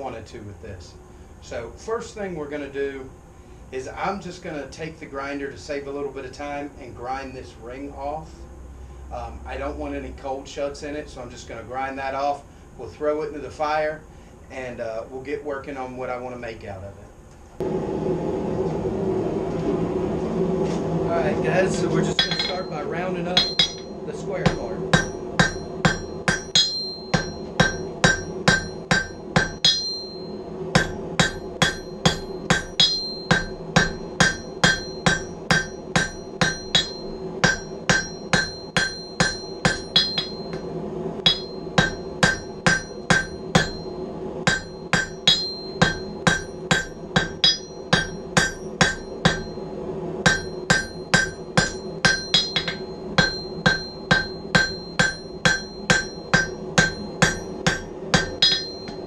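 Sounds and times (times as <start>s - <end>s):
steady low hum: 0.0s - 59.0s
anvil ringing: 22.1s - 59.0s
hammer striking on anvil: 22.1s - 59.0s.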